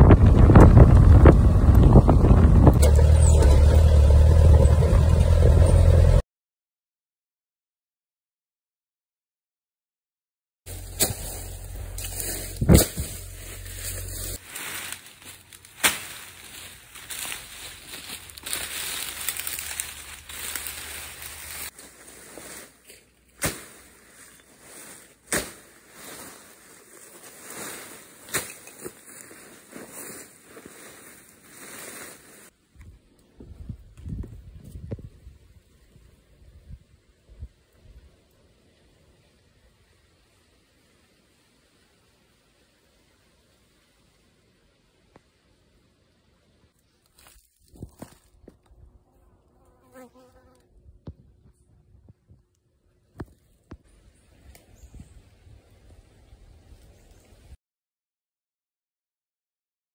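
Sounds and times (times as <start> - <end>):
wind gusting on microphone: 0.0 - 5.2, 32.8 - 38.1
grass rustling: 0.0 - 6.0, 10.7 - 33.0, 46.8 - 50.6
car engine and tyres rumbling: 0.0 - 6.2, 10.7 - 35.2
machete chopping brush: 10.7 - 24.4, 25.0 - 26.5, 27.6 - 29.3.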